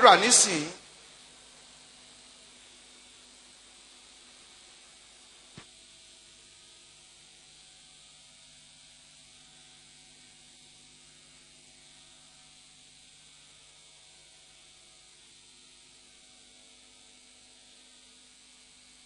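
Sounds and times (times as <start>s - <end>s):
faint steady hiss: 0.0s - 1.6s
low electrical hum: 0.0s - 12.4s.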